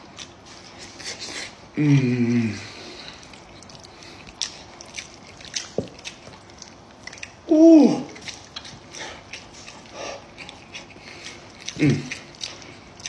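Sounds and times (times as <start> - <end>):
wet chewing and tearing meat: 0.0 - 1.6, 2.7 - 13.0
person humming: 1.8 - 2.8, 7.5 - 8.2, 11.8 - 12.2.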